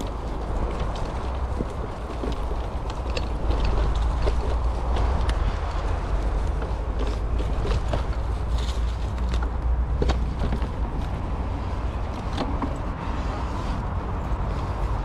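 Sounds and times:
bike rattling clicks and knocks: 0.0 - 15.0
tyres crunching on dirt: 0.0 - 15.0
wind rumbling on microphone: 0.0 - 15.0.

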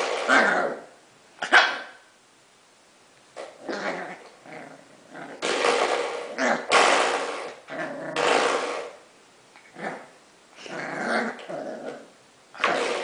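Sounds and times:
puppy growling: 0.1 - 1.6, 3.5 - 5.4, 6.3 - 6.7, 7.5 - 8.9, 9.6 - 13.0.

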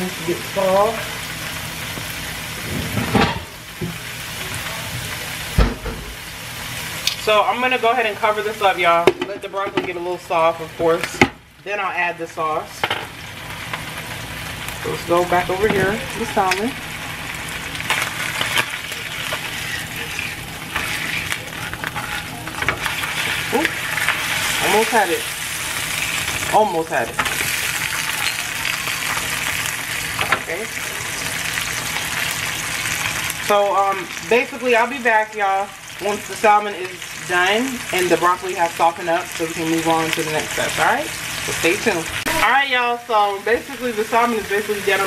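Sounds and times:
vegetables sizzling in a skillet: 0.0 - 45.0
heavy thud: 5.6 - 6.2
spatula scraping a pan: 17.9 - 26.6.

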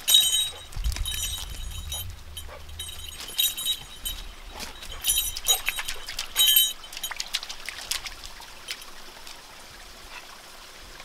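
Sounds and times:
metallic collar jingle: 0.0 - 7.6
dog paws in wet gravel: 0.0 - 9.4
water trickling over stones: 0.0 - 11.0.

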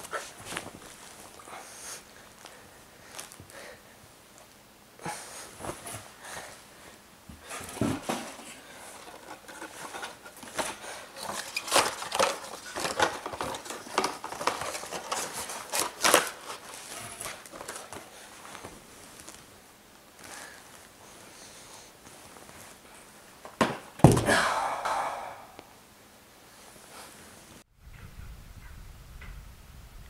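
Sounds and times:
box being handled: 7.4 - 18.7
plastic bag crinkling: 8.8 - 19.4.

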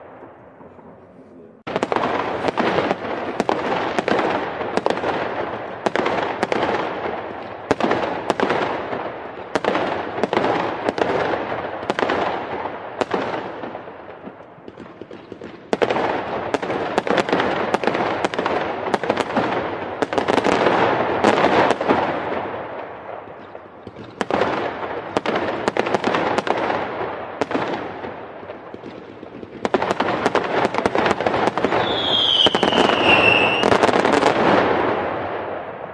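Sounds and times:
fireworks bursting with bangs: 0.0 - 35.9
fireworks crackling: 0.0 - 35.9
falling firework whistle: 31.6 - 33.9.

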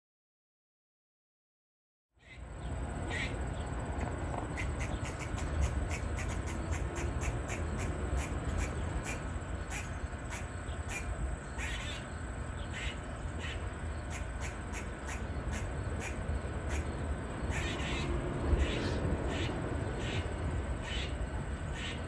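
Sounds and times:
squirrel barking: 2.2 - 3.7, 4.4 - 22.0.

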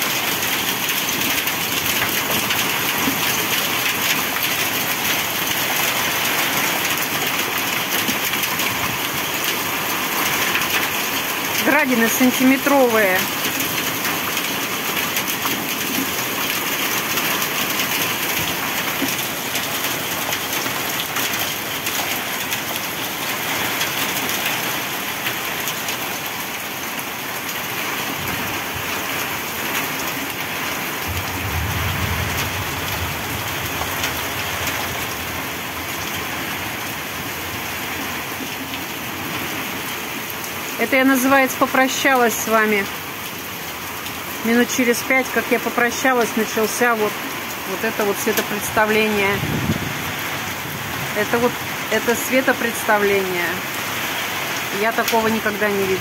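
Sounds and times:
heavy rain and hail pelting ground: 0.0 - 56.0
low rumble: 31.0 - 37.2.

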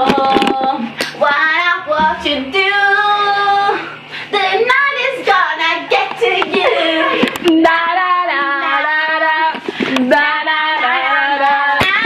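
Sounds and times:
woman singing unaccompanied: 0.0 - 12.0.

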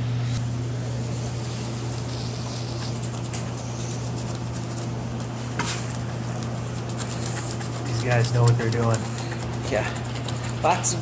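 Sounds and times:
steady low hum: 0.0 - 11.0
razor blade scraping slate: 5.6 - 11.0.

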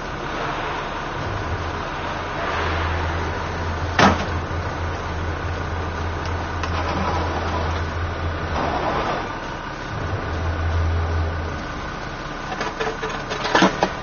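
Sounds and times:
diesel engine idling: 0.0 - 14.0
metal ramp clank: 2.7 - 4.5, 12.5 - 14.0.

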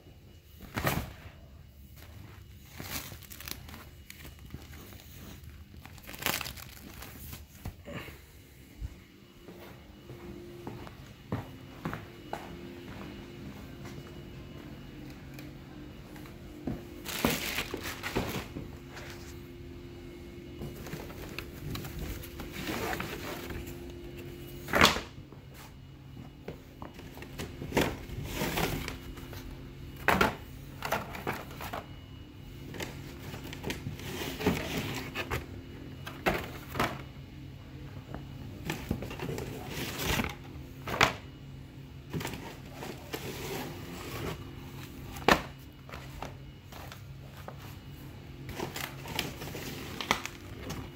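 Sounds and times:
steady low hum: 0.0 - 50.9
cardboard boxes rustling and scraping: 16.6 - 19.6, 20.5 - 24.7, 26.8 - 32.0, 32.7 - 37.0, 38.7 - 40.5, 42.1 - 50.9.

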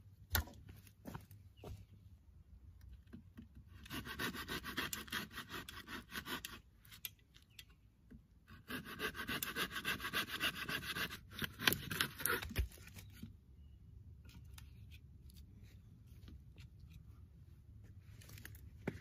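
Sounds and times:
hand saw rasping through branch: 3.8 - 6.6, 8.5 - 12.6.

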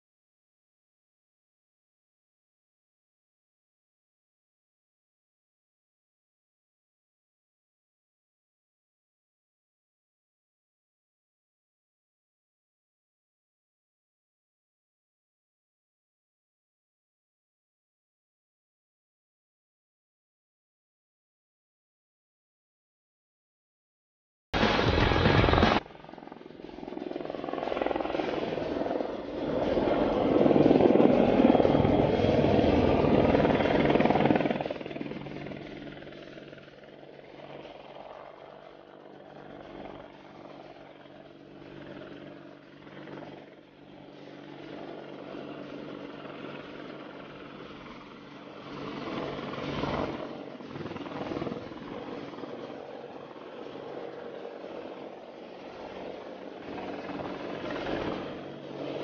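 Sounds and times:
helicopter rotor and engine: 24.6 - 59.0
faint steady tones: 25.1 - 59.0.

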